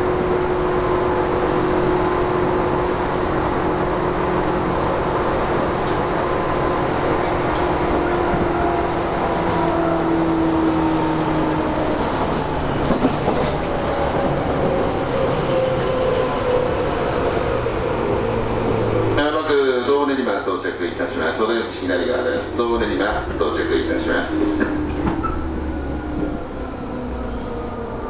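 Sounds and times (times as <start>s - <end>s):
wheels rumbling on rail: 0.0s - 28.0s
rail-joint clicks: 4.5s - 8.6s, 9.4s - 16.4s, 17.0s - 18.0s, 23.1s - 26.7s, 27.4s - 28.0s.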